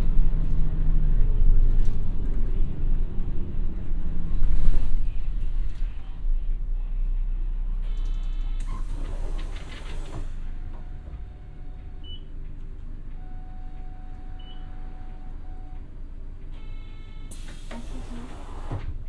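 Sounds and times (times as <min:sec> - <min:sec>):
bus diesel engine rumbling: 0:00.0 - 0:19.0
air hiss: 0:17.3 - 0:18.7.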